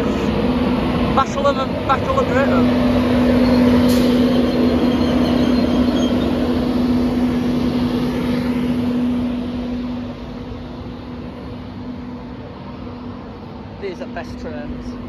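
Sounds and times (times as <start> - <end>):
broad rushing noise: 0.0 - 15.0
electric locomotive hum: 0.0 - 15.0.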